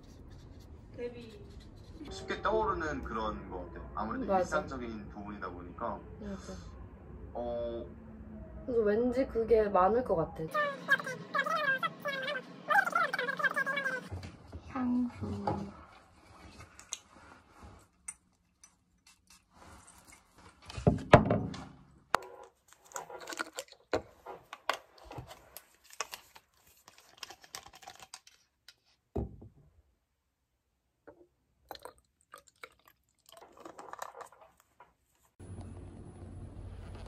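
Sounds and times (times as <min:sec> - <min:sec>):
liquid trickling into bottle: 0:31.6 - 0:34.6.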